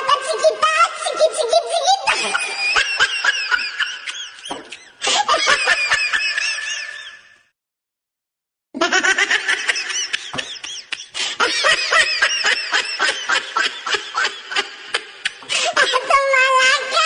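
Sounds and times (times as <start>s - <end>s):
high-pitched hearty laughter: 1.8s - 7.4s, 8.8s - 16.4s.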